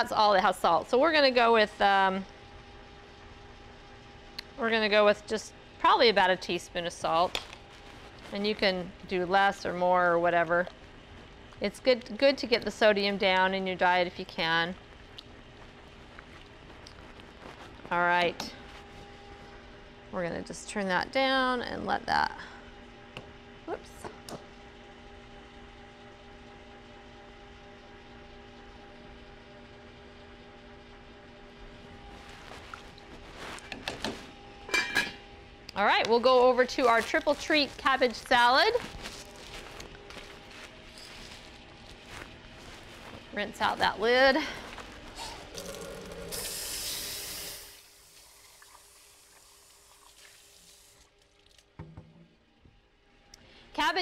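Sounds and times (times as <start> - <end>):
low background hum: 0.0 - 54.0
kitchen tap running: 46.3 - 51.5.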